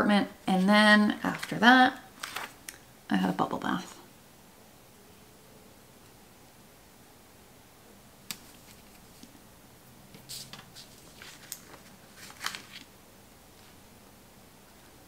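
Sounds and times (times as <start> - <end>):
paper rustling: 1.2 - 2.6, 8.3 - 9.4, 10.2 - 12.9.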